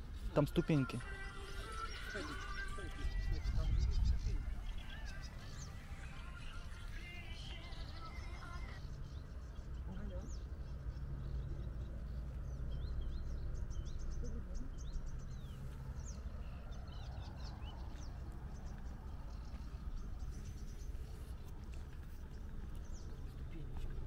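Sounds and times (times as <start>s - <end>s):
small birds chirping: 0.0s - 24.0s
steady low rumble: 0.0s - 24.0s.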